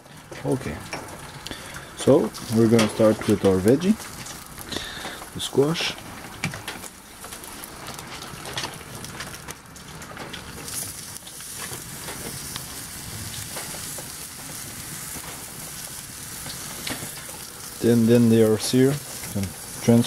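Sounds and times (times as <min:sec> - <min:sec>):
vegetables sizzling on hot block: 0:00.0 - 0:20.0.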